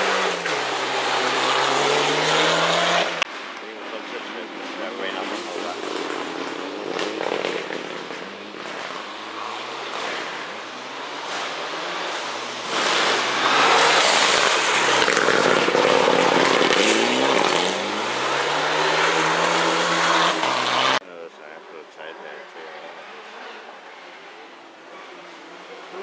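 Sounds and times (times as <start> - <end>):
rally car engine revving: 0.0 - 26.0.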